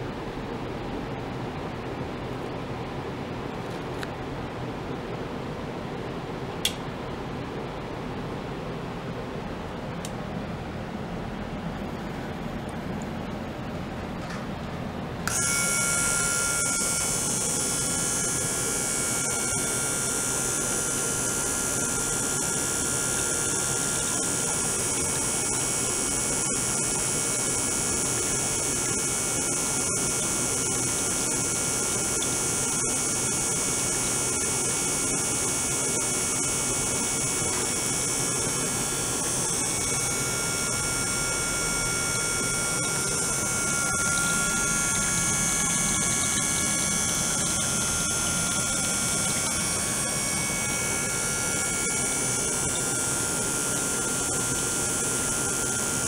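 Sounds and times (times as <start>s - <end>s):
pump low hum: 0.0s - 56.0s
thin whining tones: 15.2s - 56.0s.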